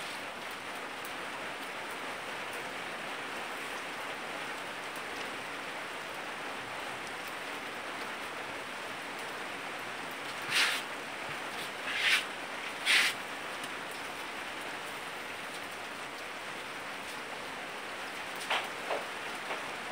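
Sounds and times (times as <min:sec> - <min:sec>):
rain hissing: 0:00.0 - 0:19.9
brighter rustle: 0:10.3 - 0:13.2.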